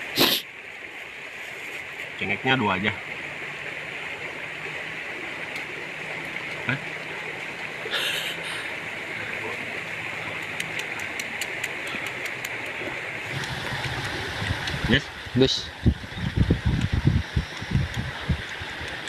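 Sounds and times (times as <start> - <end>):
stream flowing: 0.0 - 19.0
light ticks: 10.4 - 12.8.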